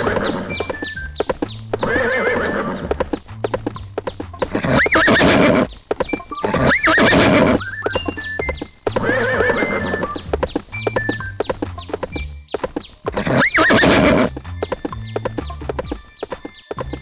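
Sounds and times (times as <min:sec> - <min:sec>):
horse neighing: 0:00.0 - 0:00.8, 0:01.7 - 0:03.2, 0:04.4 - 0:05.7, 0:06.4 - 0:07.8, 0:08.9 - 0:10.3, 0:13.1 - 0:14.4
hooves clip-clopping: 0:00.0 - 0:17.0.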